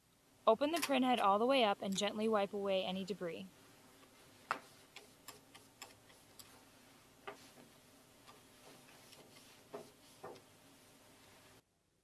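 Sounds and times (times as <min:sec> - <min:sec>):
light clicks and taps of cleaning: 0:07.2 - 0:10.5.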